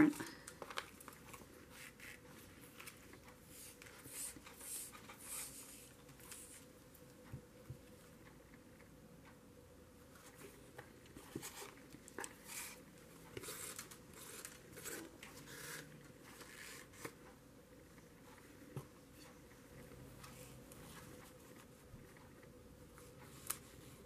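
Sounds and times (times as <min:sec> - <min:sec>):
faint rustling and scraping: 0:10.0 - 0:24.0.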